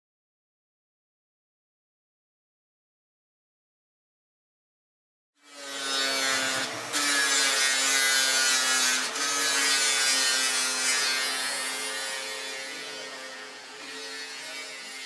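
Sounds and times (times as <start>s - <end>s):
angle grinder grinding steel: 5.4s - 15.0s.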